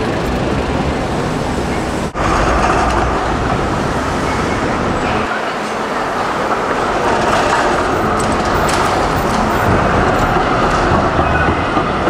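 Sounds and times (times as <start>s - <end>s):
cars in traffic: 0.0s - 12.0s
trams running on rails: 0.0s - 12.0s.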